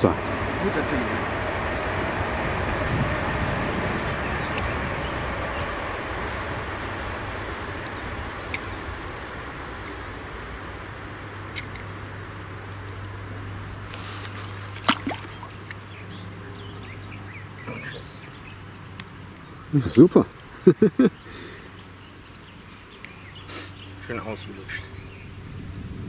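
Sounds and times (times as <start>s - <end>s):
steady rushing noise: 0.0s - 18.5s, 24.0s - 26.0s
small birds chirping: 0.0s - 26.0s.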